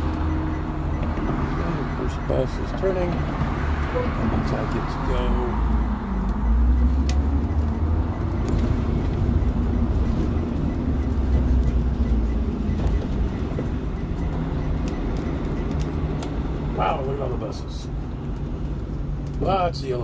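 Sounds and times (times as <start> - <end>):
bus engine deep rumble: 0.0 - 20.0
road noise: 0.0 - 20.0.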